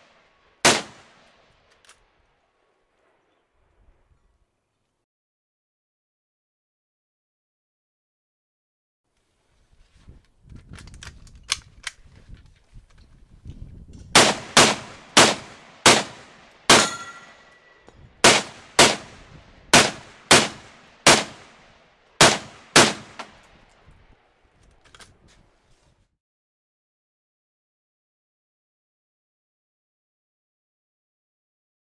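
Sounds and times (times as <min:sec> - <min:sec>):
rifle shots with echo: 0:00.0 - 0:01.6, 0:14.1 - 0:17.6, 0:18.2 - 0:23.5
metallic ring: 0:16.8 - 0:17.9.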